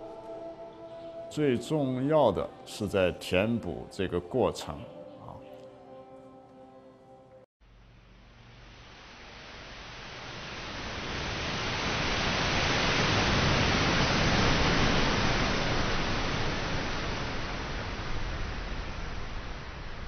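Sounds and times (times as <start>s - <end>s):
sea surf washing up beach: 8.8s - 20.0s.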